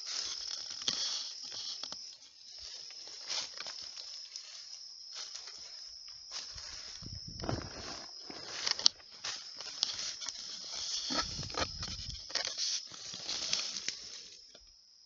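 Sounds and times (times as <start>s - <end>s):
dry leaves and branches crackling: 0.0s - 14.7s
high insect drone: 0.0s - 15.0s.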